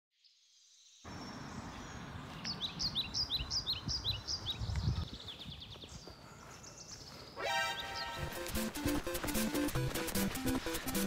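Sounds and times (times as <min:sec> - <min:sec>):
songbird singing: 0:00.2 - 0:08.4.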